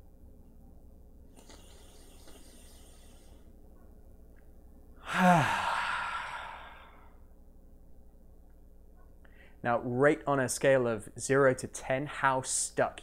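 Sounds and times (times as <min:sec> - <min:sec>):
man breathing in: 0:01.4 - 0:03.5, 0:05.0 - 0:07.2
man sighing: 0:05.0 - 0:07.1.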